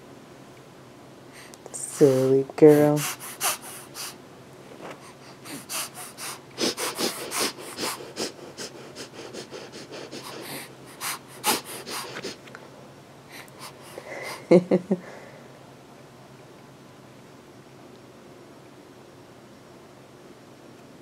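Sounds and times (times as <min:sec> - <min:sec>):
baby sniffing: 0:01.4 - 0:04.2, 0:04.8 - 0:12.5, 0:13.3 - 0:14.5.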